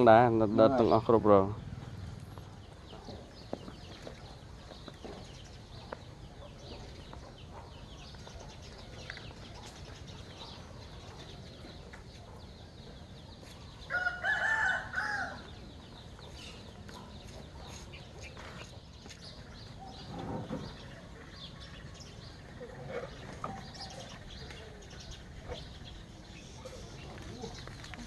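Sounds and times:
small birds chirping: 0:00.0 - 0:28.0
rooster crowing: 0:13.9 - 0:15.5.

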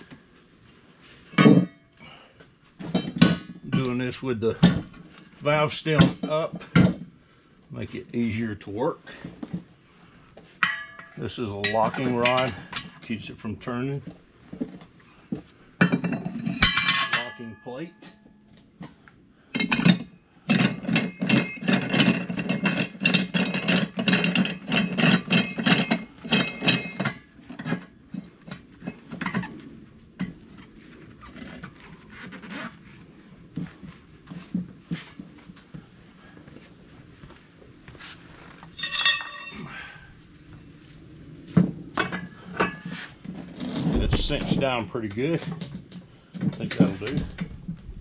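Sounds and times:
metal clinks and knocks: 0:01.3 - 0:02.0, 0:02.8 - 0:05.1, 0:10.5 - 0:13.2, 0:15.8 - 0:18.5, 0:19.5 - 0:29.5, 0:38.7 - 0:39.9, 0:43.9 - 0:48.0
metallic clinks and rattling: 0:38.8 - 0:39.8.

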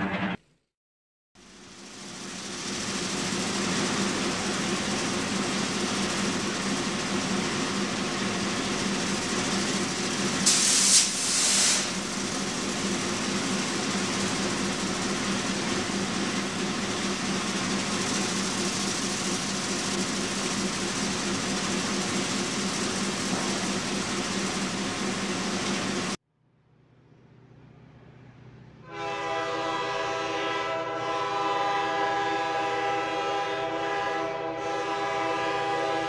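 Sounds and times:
brief loud hiss: 0:10.5 - 0:12.0.

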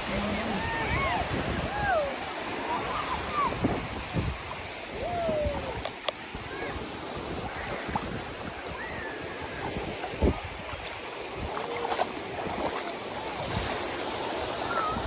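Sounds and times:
waves lapping on pebbly shore: 0:00.0 - 0:15.0
wind buffeting microphone: 0:00.0 - 0:15.0.

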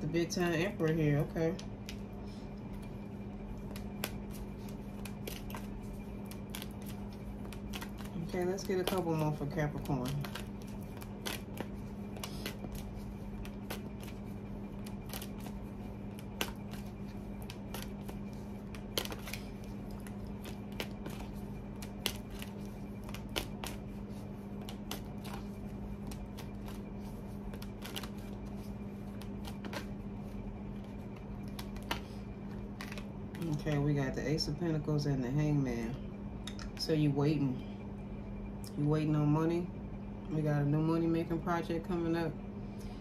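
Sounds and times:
steady background hum: 0:00.0 - 0:43.0
cards being shuffled: 0:03.5 - 0:33.8.

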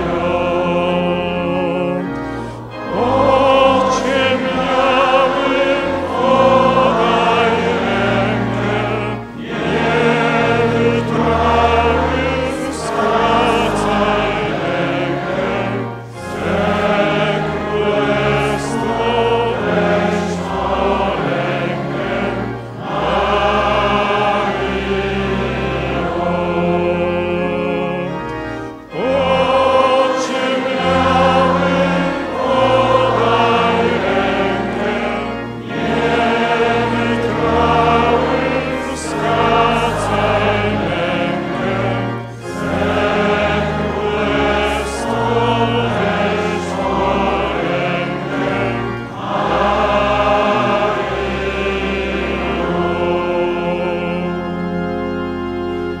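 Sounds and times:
choir and congregation singing a hymn: 0:00.0 - 0:56.0
organ holding long low notes: 0:00.0 - 0:56.0.

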